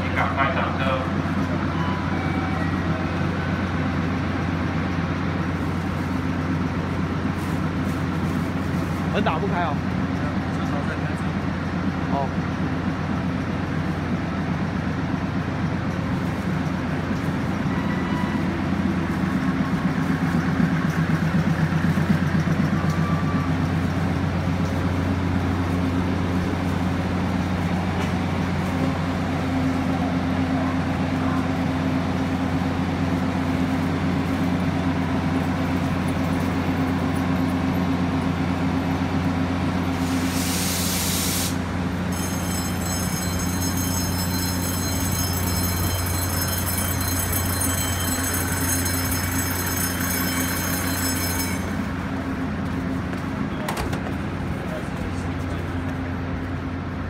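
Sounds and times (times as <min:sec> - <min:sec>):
diesel engines idling: 0:00.0 - 0:57.0
compressed-air hiss: 0:40.1 - 0:41.6.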